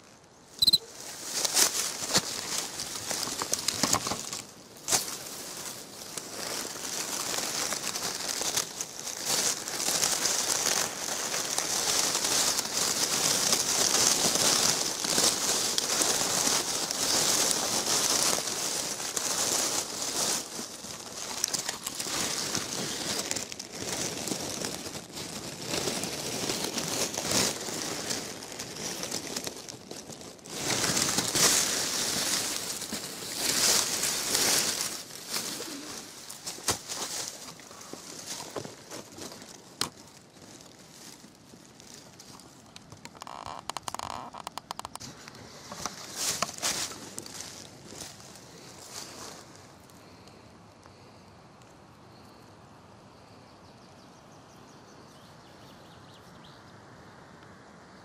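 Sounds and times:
dry leaves and net rustling: 0.0 - 51.2.

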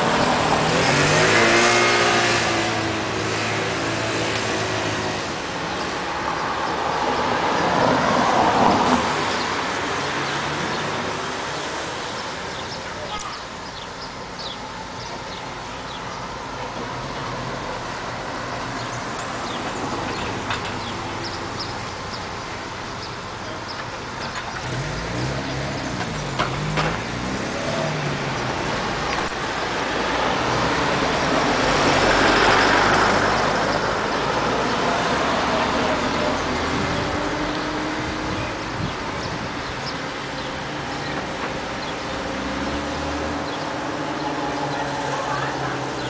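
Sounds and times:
vehicle engine revving: 0.0 - 5.8, 24.5 - 46.0
outdoor background noise: 0.0 - 46.0.

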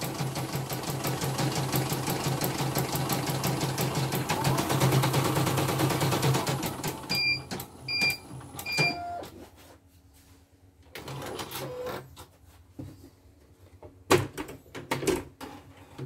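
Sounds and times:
embroidery machine stitching: 0.0 - 9.0
brief lower beep: 7.1 - 9.2.

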